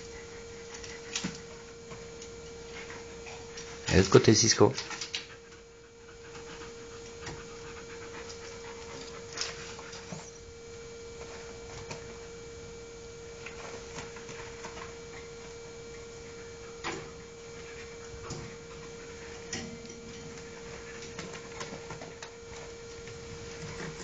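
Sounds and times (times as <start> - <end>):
steady hum: 0.0 - 24.0
dog panting: 2.6 - 10.4, 16.2 - 24.0.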